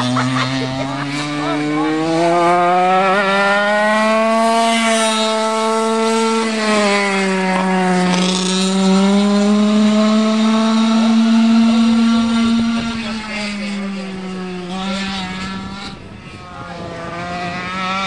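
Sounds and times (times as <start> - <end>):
go-kart engine running hard: 0.0 - 18.0.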